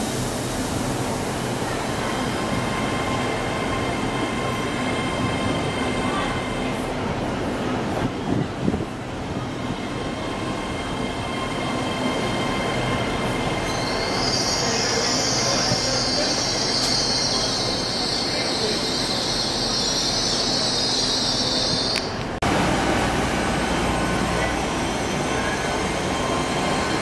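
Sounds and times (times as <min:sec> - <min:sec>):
train rumbling: 0:00.0 - 0:27.0
high-pitched wheel squeal: 0:13.6 - 0:22.2.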